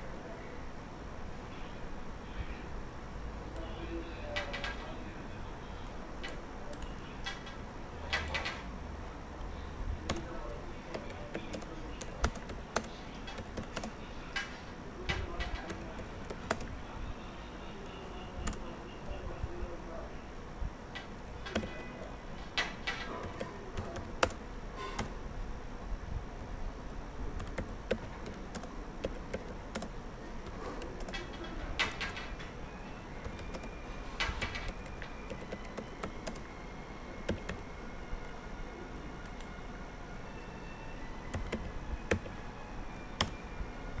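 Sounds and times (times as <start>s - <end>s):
keyboard typing: 6.2s - 8.7s, 10.0s - 14.5s, 15.1s - 16.8s, 17.5s - 19.4s, 21.0s - 25.2s, 27.4s - 39.6s, 41.2s - 42.4s, 43.0s - 44.0s.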